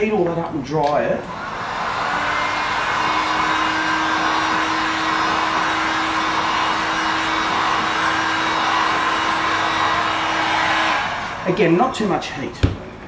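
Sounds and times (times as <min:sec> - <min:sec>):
heat gun blowing air: 0:01.2 - 0:11.6.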